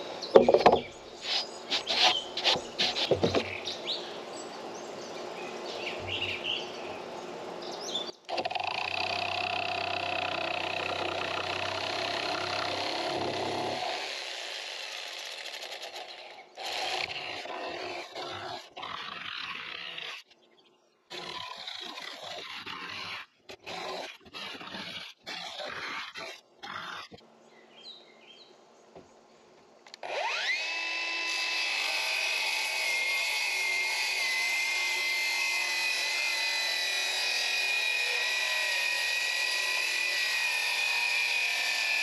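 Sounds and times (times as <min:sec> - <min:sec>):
faint birds chirping: 0:00.0 - 0:08.3, 0:26.4 - 0:29.9
knocks from handling boards: 0:00.4 - 0:00.9, 0:02.4 - 0:03.6
jigsaw cutting plywood: 0:00.4 - 0:03.5, 0:08.3 - 0:18.7, 0:21.1 - 0:27.1, 0:30.0 - 0:42.0.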